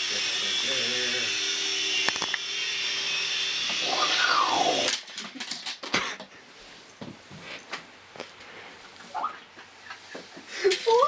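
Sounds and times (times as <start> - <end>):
toy helicopter motor whining: 0.0 - 5.5.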